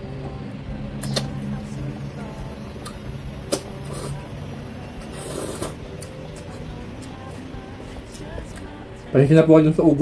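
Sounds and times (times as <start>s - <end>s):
electric fan humming: 0.0s - 10.0s
click: 1.0s - 1.3s
slurping and chewing noodles: 5.0s - 5.8s.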